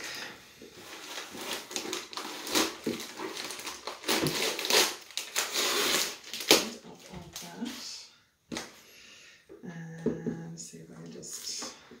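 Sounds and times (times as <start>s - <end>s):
wrapping being torn: 0.8s - 7.0s.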